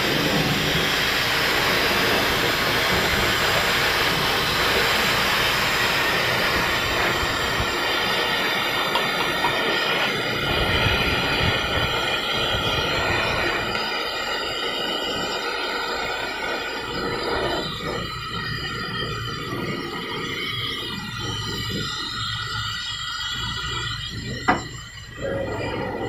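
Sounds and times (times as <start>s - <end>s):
hair dryer running: 0.0s - 18.1s.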